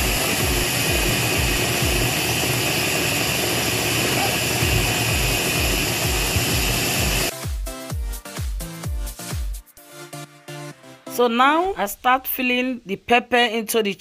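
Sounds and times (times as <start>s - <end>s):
dance music with kick drum: 0.0s - 2.5s, 3.9s - 9.8s
electric food chopper motor: 0.0s - 7.3s.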